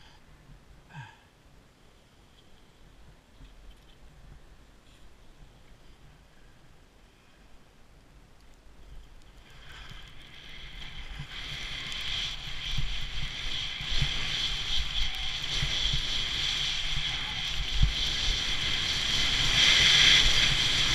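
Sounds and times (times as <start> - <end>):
skis sliding over packed snow: 8.8 - 20.9.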